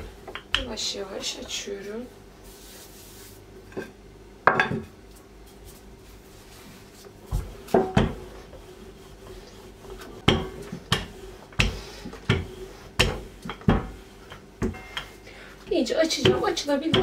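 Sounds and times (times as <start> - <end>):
rolling pin knocking on worktop: 7.3 - 8.2, 10.2 - 15.1.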